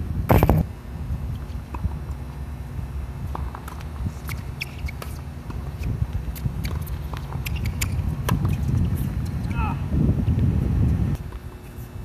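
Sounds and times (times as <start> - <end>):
wind buffeting microphone: 0.0 - 2.0, 5.9 - 11.3
faint ticks and taps of tennis play: 3.3 - 9.0.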